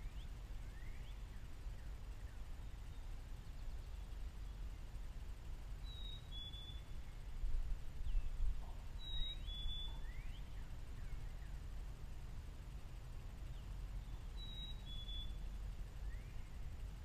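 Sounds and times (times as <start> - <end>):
wind rumble on microphone: 6.8 - 17.0
songbird two-note whistle: 9.0 - 10.5, 14.4 - 15.4.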